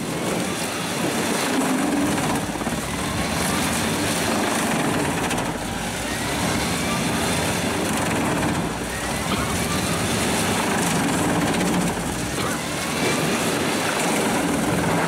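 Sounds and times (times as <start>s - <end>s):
wood chipper chipping log: 0.0s - 15.0s.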